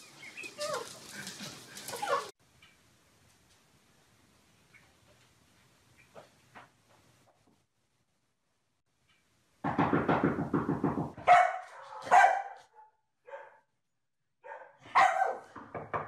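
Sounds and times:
large dog barking: 0:11.2 - 0:13.6, 0:14.4 - 0:15.5.

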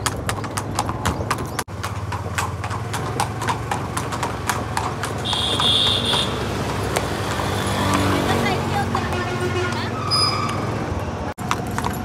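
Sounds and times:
horse hooves on brick: 0:00.0 - 0:12.0.

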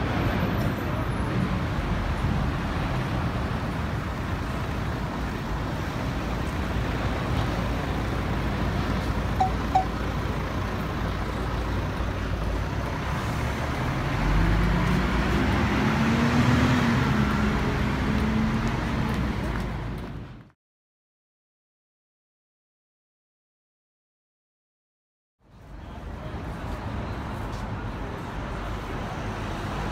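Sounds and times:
passing cars rumbling: 0:00.0 - 0:20.5
vehicle engine pulling away: 0:01.5 - 0:20.2
short high beeps: 0:09.4 - 0:10.0.

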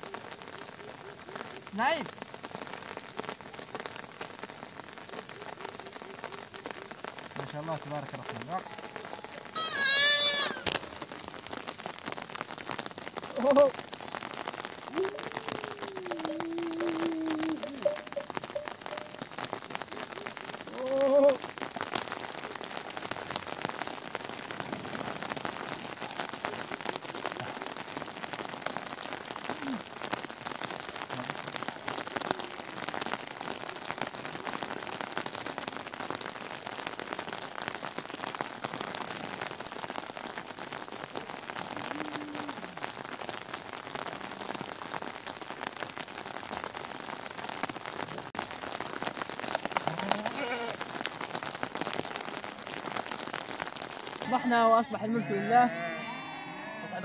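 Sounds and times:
heavy rain falling: 0:00.0 - 0:57.0
sheep bleating: 0:09.5 - 0:10.8, 0:49.8 - 0:50.8, 0:54.3 - 0:57.0.

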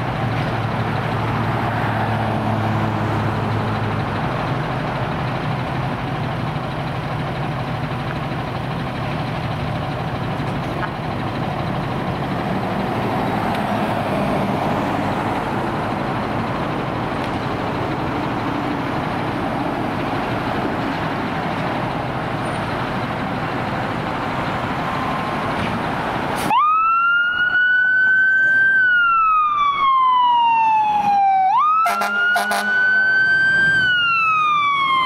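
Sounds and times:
diesel engine idling: 0:00.0 - 0:26.5
siren rising in pitch: 0:24.8 - 0:25.5, 0:26.5 - 0:35.0.

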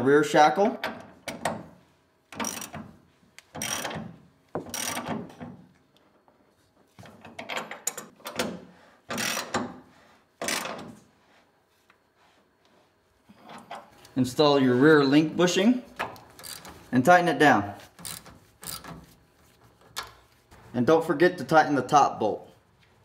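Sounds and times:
ratchet wrench clicking: 0:04.7 - 0:05.1, 0:16.2 - 0:16.8, 0:18.0 - 0:19.0.

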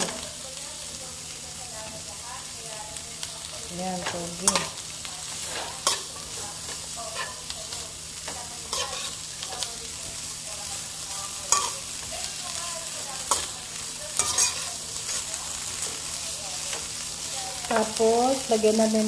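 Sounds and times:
vegetables sizzling in a wok: 0:00.0 - 0:19.0
metal spatula scraping a pan: 0:04.0 - 0:07.5, 0:08.3 - 0:09.7, 0:11.1 - 0:11.9, 0:13.2 - 0:16.1.

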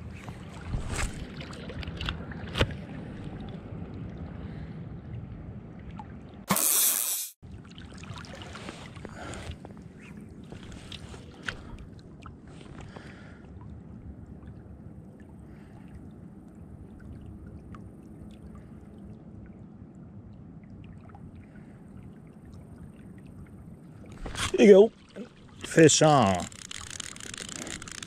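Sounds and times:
fly rod and line clicks: 0:25.6 - 0:28.0.

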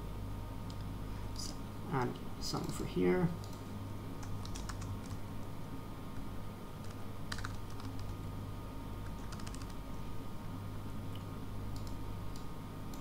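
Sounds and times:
steady low hum: 0:00.0 - 0:13.0
keyboard typing: 0:04.2 - 0:05.2, 0:06.8 - 0:08.2, 0:09.0 - 0:09.8, 0:11.7 - 0:13.0.

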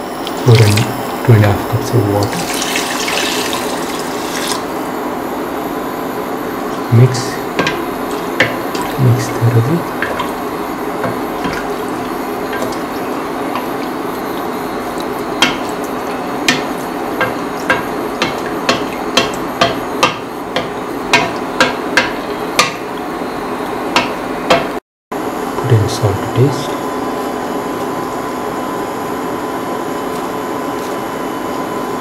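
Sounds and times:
pot cooking with steady hiss: 0:00.0 - 0:24.8.

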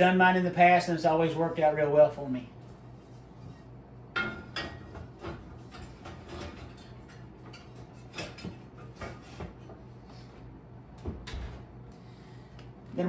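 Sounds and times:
cast iron pans clicking and knocking: 0:04.2 - 0:09.6.

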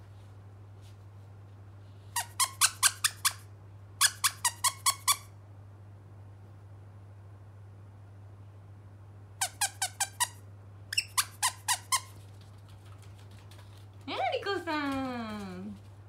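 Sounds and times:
squeaky plush toy squeaking: 0:02.2 - 0:03.4, 0:04.0 - 0:05.3, 0:09.4 - 0:12.2.

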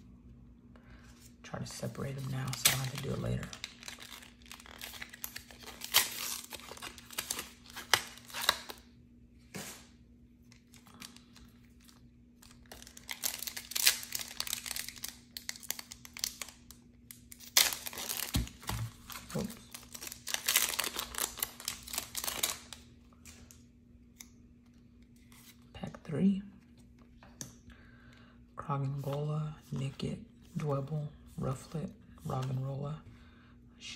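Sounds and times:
cardboard and plastic crinkling: 0:01.9 - 0:08.8, 0:17.4 - 0:22.8
foil wrapper tearing: 0:02.1 - 0:08.8, 0:12.4 - 0:22.9.

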